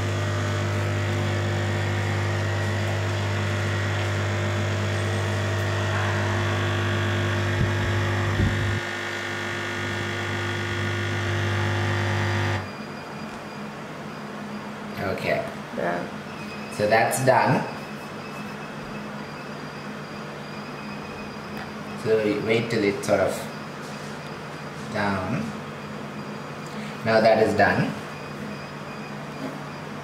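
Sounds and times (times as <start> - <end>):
coffee machine pump humming: 0.0 - 13.9.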